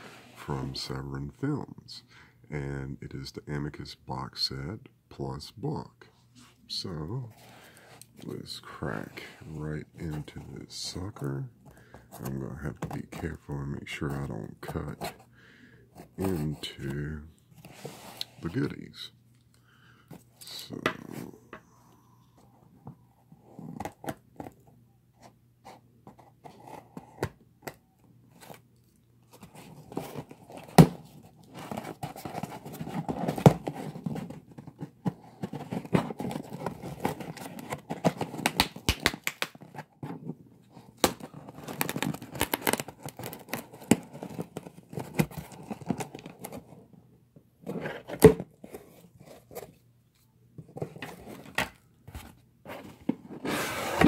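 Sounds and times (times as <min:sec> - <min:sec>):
cardboard rubbing and crinkling: 0:29.3 - 0:38.9, 0:39.6 - 0:46.8, 0:47.6 - 0:49.8, 0:50.6 - 0:54.0
tape tearing: 0:41.0 - 0:44.4.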